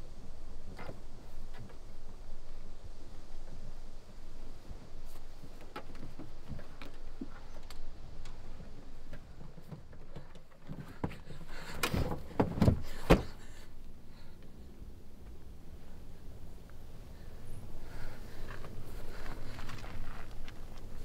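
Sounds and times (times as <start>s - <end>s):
thuds and rustling against car: 8.6s - 13.6s.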